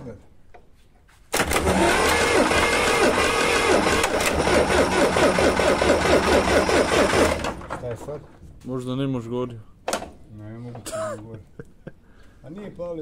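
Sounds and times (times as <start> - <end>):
diesel engine cranking by starter: 1.4 - 7.8.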